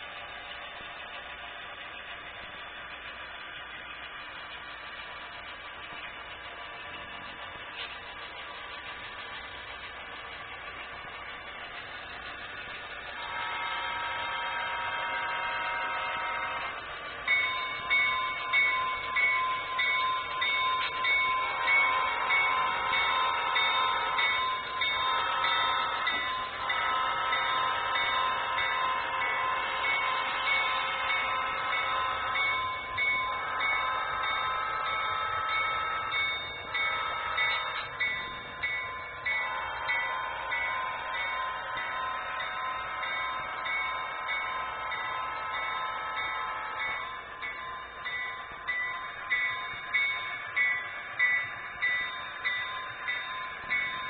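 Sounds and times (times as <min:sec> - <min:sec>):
toy train bell ringing: 0:13.0 - 0:54.0.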